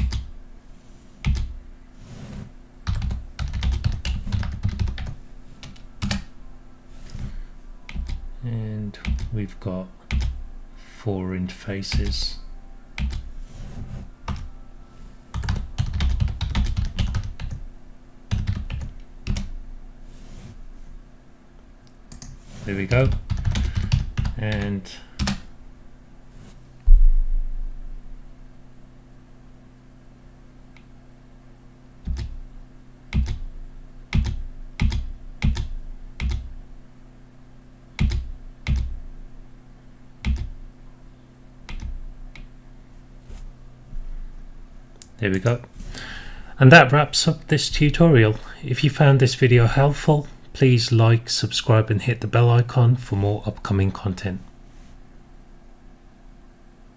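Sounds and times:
typing on computer keyboard: 0:00.0 - 0:00.3, 0:01.2 - 0:01.5, 0:02.9 - 0:06.2, 0:15.4 - 0:17.6, 0:18.3 - 0:19.5, 0:23.0 - 0:25.4, 0:33.1 - 0:33.4, 0:34.2 - 0:36.5, 0:38.0 - 0:38.9, 0:40.2 - 0:40.5.

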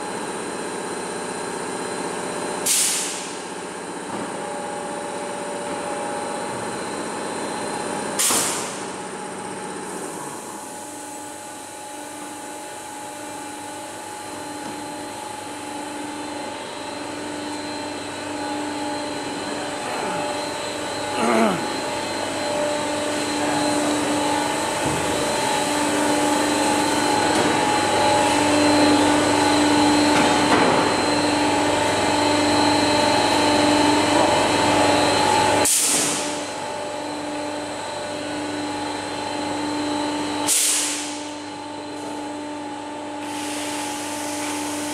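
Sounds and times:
machine hiss: 0:02.6 - 0:03.3, 0:40.4 - 0:41.2, 0:43.2 - 0:44.9
machinery humming: 0:03.6 - 0:44.9.

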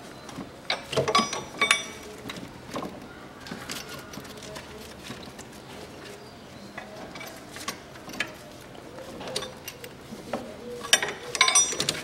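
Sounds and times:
ringing metal clinks: 0:00.7 - 0:02.1, 0:10.9 - 0:12.0.

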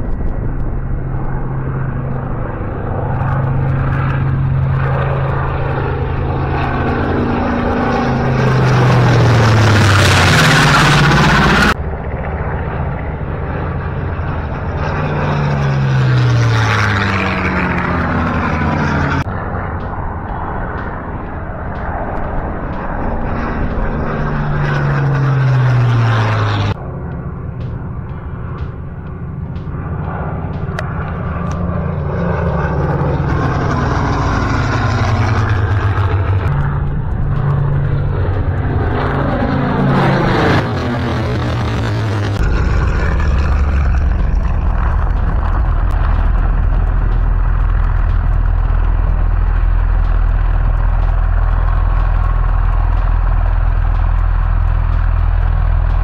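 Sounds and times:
propeller airplanes flying past: 0:00.0 - 0:56.0.

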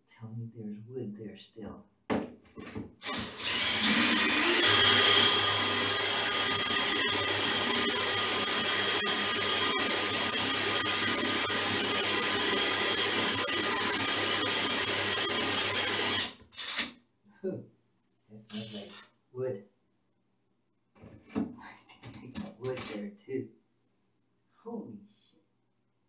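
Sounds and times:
cordless drill boring into tile: 0:03.0 - 0:16.9.

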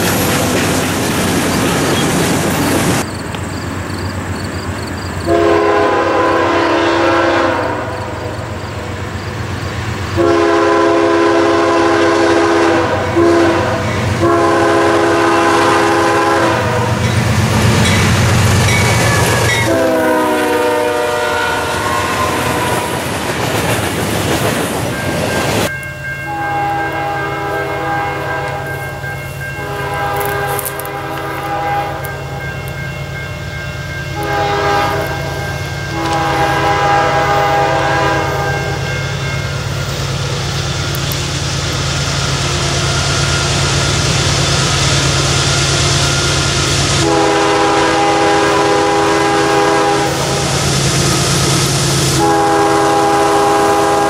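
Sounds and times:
train rumble and rail noise: 0:00.0 - 0:54.0
distant locomotive horn blasts: 0:05.3 - 0:09.1, 0:10.1 - 0:17.4, 0:18.6 - 0:23.2, 0:26.1 - 0:32.8, 0:33.5 - 0:54.0
locomotive horn: 0:05.3 - 0:09.1, 0:10.1 - 0:17.2, 0:18.9 - 0:23.2, 0:26.2 - 0:32.5, 0:34.1 - 0:39.5, 0:40.6 - 0:54.0.

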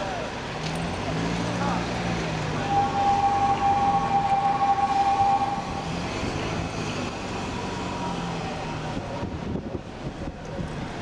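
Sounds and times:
heavy diesel machinery running: 0:00.0 - 0:11.0
two-note warning tone: 0:02.6 - 0:05.8.

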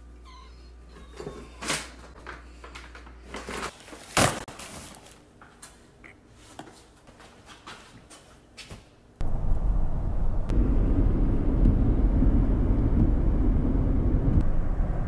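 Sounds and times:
packaging rustling: 0:01.6 - 0:05.8.

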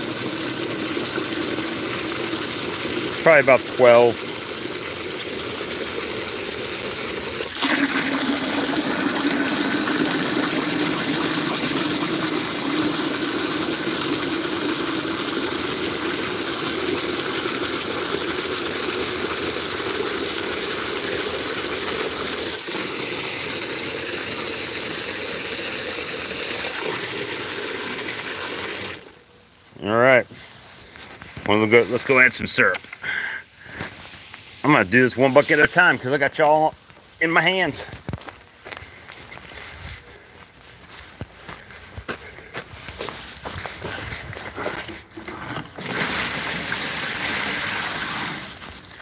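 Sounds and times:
hose water splashing into bucket: 0:00.0 - 0:29.2, 0:42.3 - 0:49.0.

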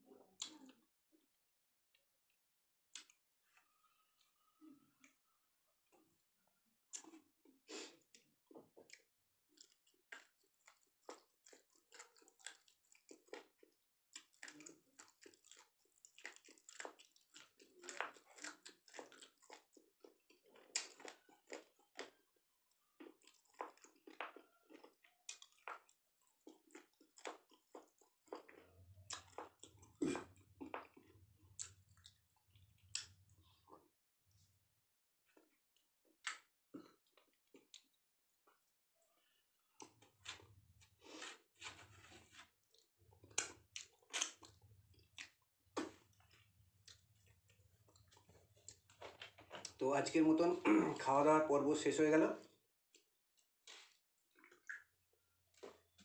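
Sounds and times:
person chewing wetly: 0:02.9 - 0:03.7, 0:06.9 - 0:33.9, 0:35.3 - 0:50.6, 0:52.4 - 0:56.0.

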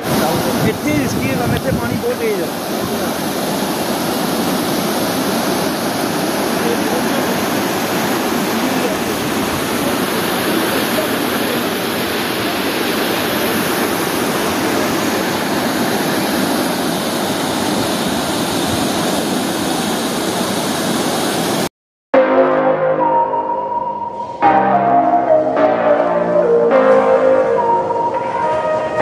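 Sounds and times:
river rushing over boulders: 0:00.0 - 0:21.7.

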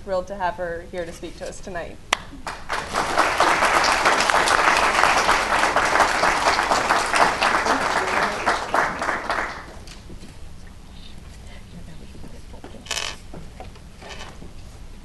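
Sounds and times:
audience applauding: 0:02.4 - 0:10.0.

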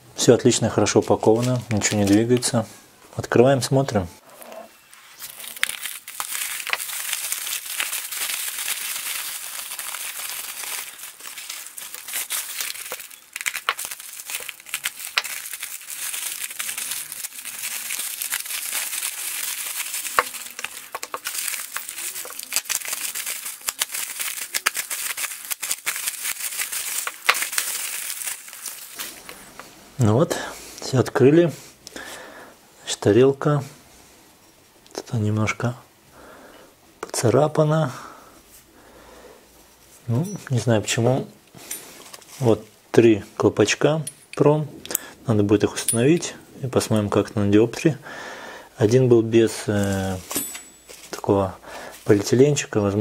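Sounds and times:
bubble wrap crinkling: 0:00.6 - 0:02.7, 0:04.2 - 0:30.0, 0:41.6 - 0:42.8, 0:48.8 - 0:53.0.

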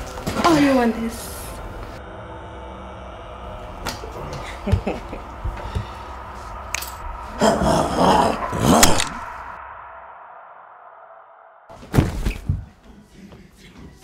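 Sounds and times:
faint steady drone: 0:00.8 - 0:11.7.

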